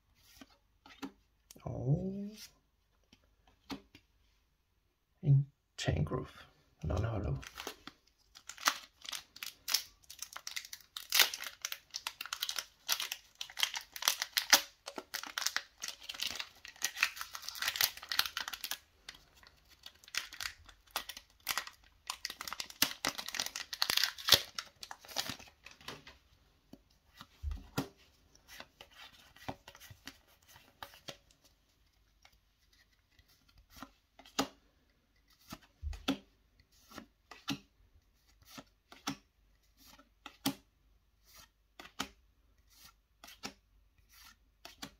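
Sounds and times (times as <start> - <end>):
foil wrapper tearing and crinkling: 7.4 - 18.8, 19.4 - 25.8.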